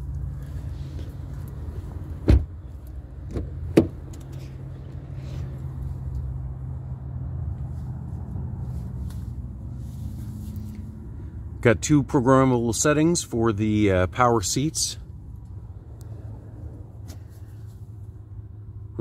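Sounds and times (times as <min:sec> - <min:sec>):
car door shutting with thud: 0:02.2 - 0:02.5, 0:03.3 - 0:04.0.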